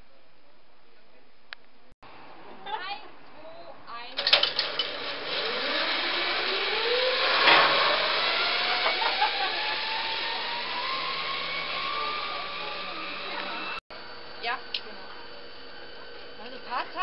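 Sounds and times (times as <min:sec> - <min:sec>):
zipline pulley whine: 0:04.3 - 0:13.8
hissing cable rush: 0:04.6 - 0:13.8.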